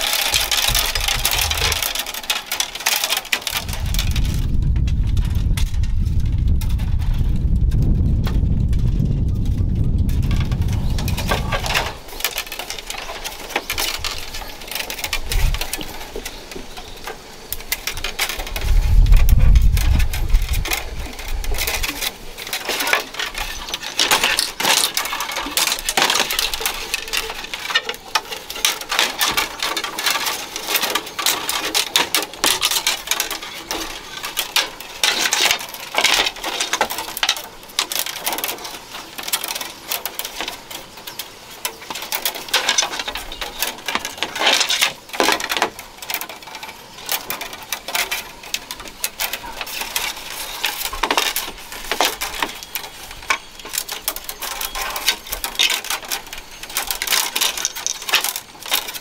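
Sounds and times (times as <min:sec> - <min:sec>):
bamboo strips clicking and scraping: 0:00.0 - 0:59.0
low rumble: 0:03.6 - 0:12.1.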